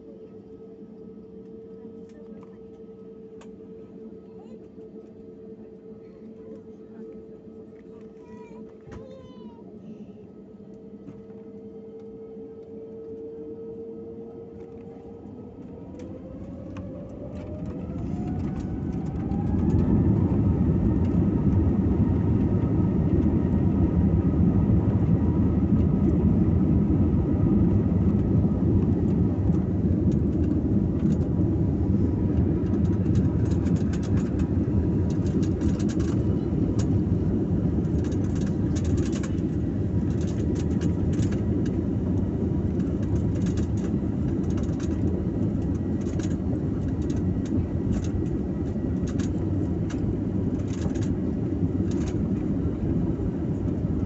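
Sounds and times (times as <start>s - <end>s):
jet engines roaring: 11.0s - 54.0s.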